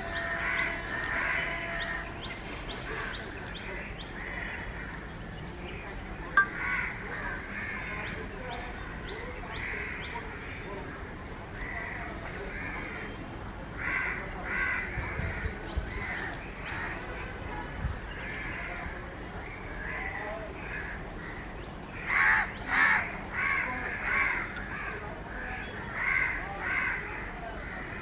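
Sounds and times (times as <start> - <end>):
crows cawing: 22.0 - 27.1.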